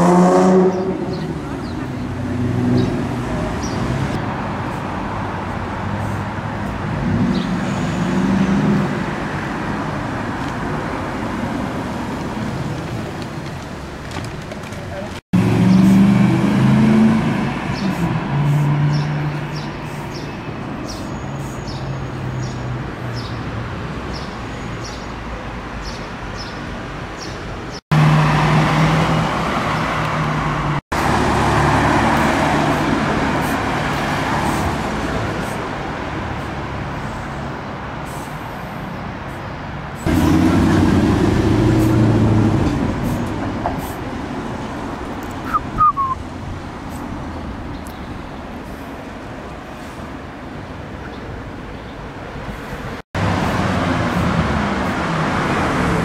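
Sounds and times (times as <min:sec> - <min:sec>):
car engines idling and pulling away: 0:00.0 - 0:56.0
cars passing by: 0:00.0 - 0:56.0
short high chirp: 0:45.4 - 0:46.2.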